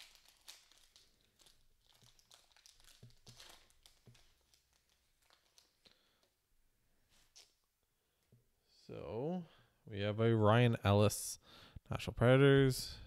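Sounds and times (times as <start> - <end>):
foil wrapper crinkling and tearing: 0.0 - 6.3
small crackles of cards: 0.0 - 6.4.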